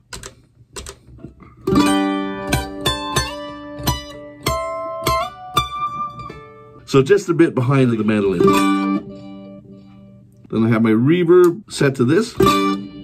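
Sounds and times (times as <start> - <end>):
electric mandolin with delay: 1.2 - 10.3, 12.0 - 13.0.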